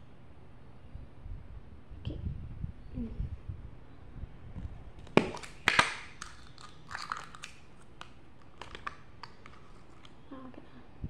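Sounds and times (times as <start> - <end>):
crinkly plastic scrape: 5.0 - 10.2.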